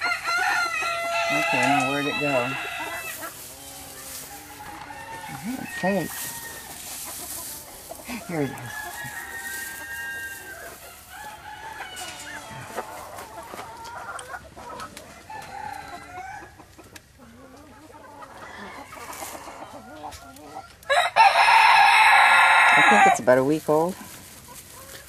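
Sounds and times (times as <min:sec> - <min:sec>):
rooster crowing: 0:00.0 - 0:03.3, 0:03.9 - 0:07.0, 0:08.1 - 0:13.2, 0:15.2 - 0:16.6, 0:18.2 - 0:19.8, 0:20.9 - 0:23.2
chickens clucking: 0:00.0 - 0:25.0.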